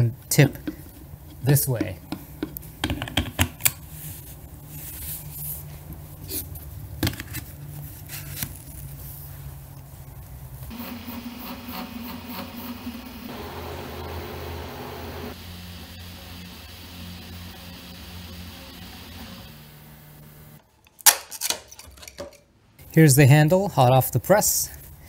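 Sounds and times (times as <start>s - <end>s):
steady multi-tone hum: 0.1s - 20.7s
plastic parts clicking and tapping: 1.4s - 3.8s.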